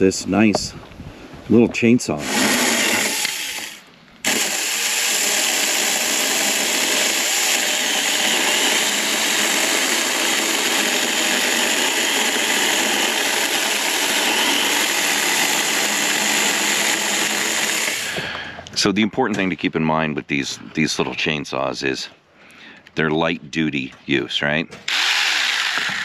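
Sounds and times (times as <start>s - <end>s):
electric chainsaw cutting log: 2.2s - 18.3s, 24.9s - 26.0s.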